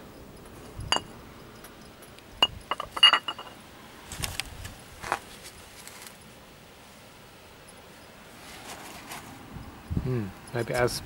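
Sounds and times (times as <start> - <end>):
metallic clinks and knocks: 0.6 - 3.6.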